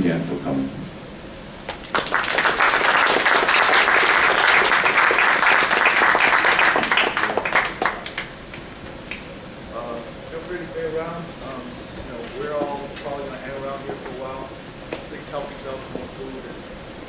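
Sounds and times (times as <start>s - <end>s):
audience applauding: 1.7s - 8.6s.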